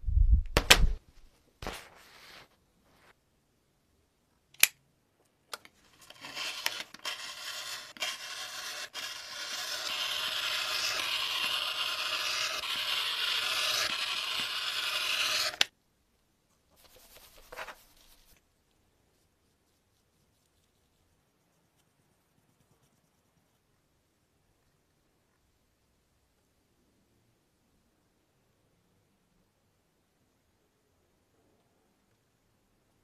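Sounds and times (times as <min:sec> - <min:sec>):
scraping rasping cutting noise: 0:06.0 - 0:15.7.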